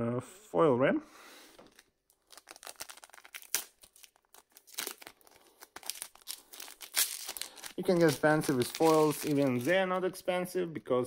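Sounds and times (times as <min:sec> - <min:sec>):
wrapper tearing and crinkling: 0:01.7 - 0:09.8.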